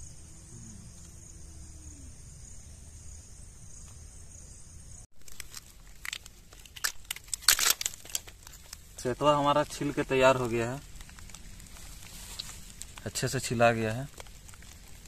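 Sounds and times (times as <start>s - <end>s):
crickets chirping: 0.0s - 6.3s
shells clicking and crackling: 5.2s - 9.0s, 9.7s - 13.1s.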